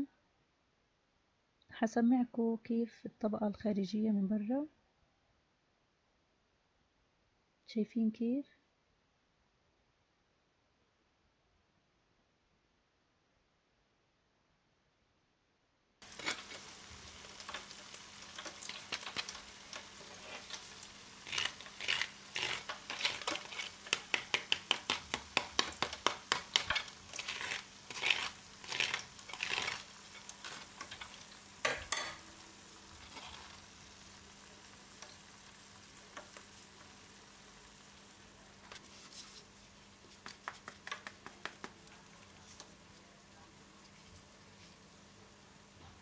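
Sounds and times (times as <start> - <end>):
crunchy crackles of fried chicken crust: 16.0 - 31.6, 32.8 - 44.9
metal spoon tapping: 31.6 - 32.3.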